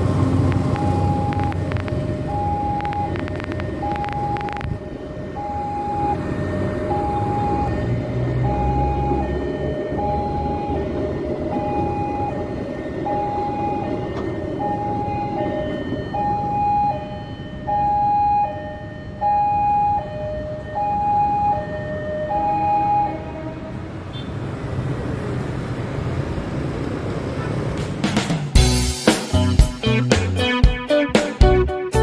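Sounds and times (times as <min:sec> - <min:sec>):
passing train rumble: 0:00.0 - 0:19.3, 0:19.9 - 0:29.5
two-tone crossing alarm: 0:00.3 - 0:24.3.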